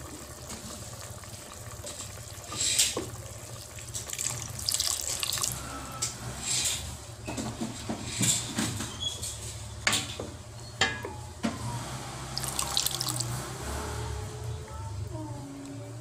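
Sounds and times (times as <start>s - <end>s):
liquid splashing in steel pot: 3.7s - 5.6s, 12.4s - 13.4s.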